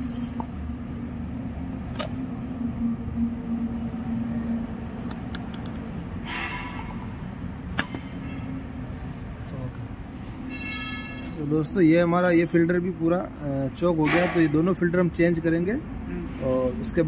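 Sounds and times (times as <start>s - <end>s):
steady low hum: 0.0s - 10.2s.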